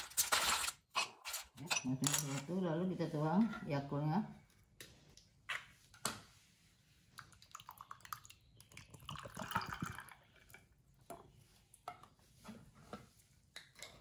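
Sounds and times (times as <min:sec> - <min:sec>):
drink pouring over ice: 0:07.5 - 0:10.4.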